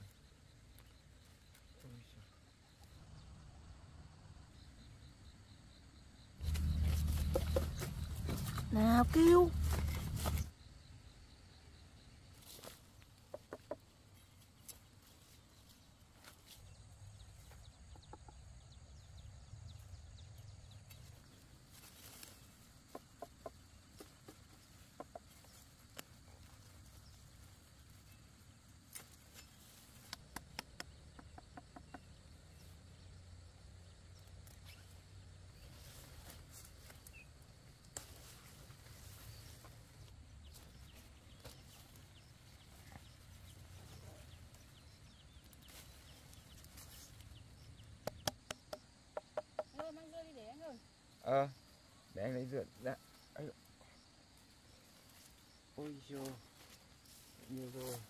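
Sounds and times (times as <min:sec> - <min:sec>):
faint chickens clucking: 0:13.0 - 0:14.2, 0:17.6 - 0:18.8, 0:22.6 - 0:25.6.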